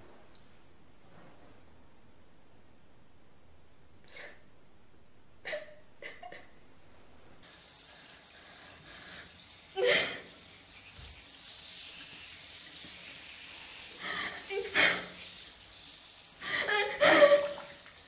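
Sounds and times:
shower running: 7.4 - 18.0
woman sobbing: 9.8 - 10.3, 14.0 - 15.2, 16.4 - 17.7.

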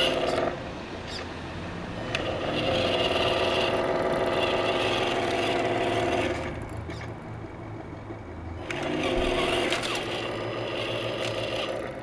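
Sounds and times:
toy truck motor humming: 0.0 - 12.0.

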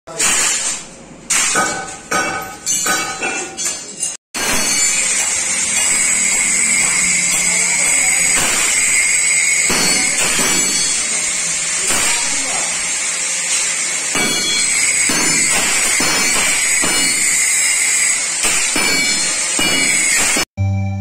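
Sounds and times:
hiss with high whine: 5.1 - 20.4.

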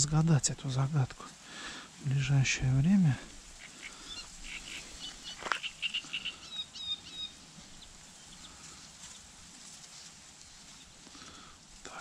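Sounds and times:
faint outdoor background: 0.0 - 12.0
small birds chirping: 3.3 - 12.0.

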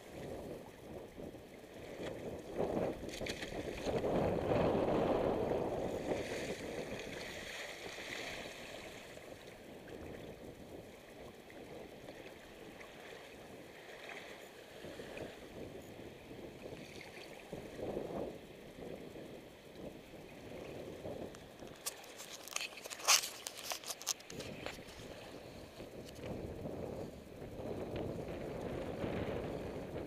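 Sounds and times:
wind noise on microphone: 0.0 - 13.7, 14.8 - 30.0
water splashing against hull: 1.8 - 10.3.

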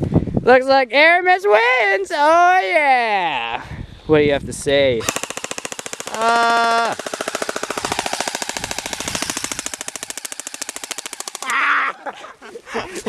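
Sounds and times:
person yelling: 1.2 - 3.6, 6.1 - 7.0, 11.4 - 12.1
airsoft rifle automatic fire: 5.0 - 11.5.

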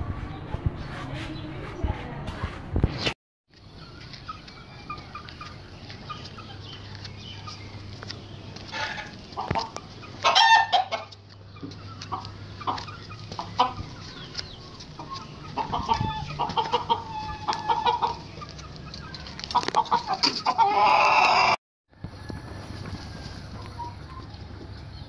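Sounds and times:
hen clucking: 3.6 - 21.6.

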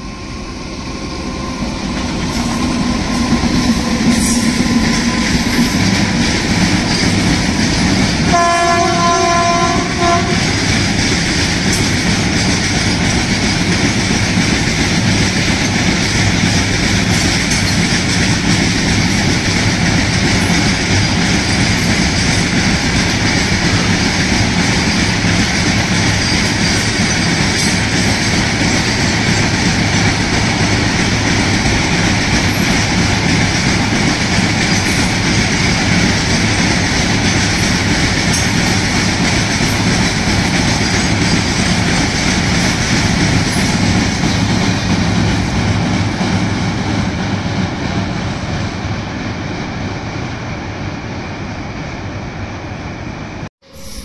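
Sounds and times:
train wheels rumbling on rails: 0.0 - 54.0
train horn: 8.2 - 10.6.

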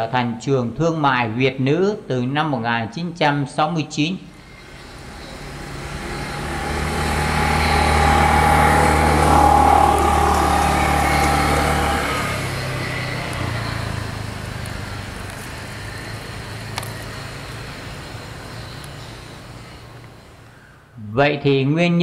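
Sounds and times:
vehicle engine passing by: 4.3 - 20.4.

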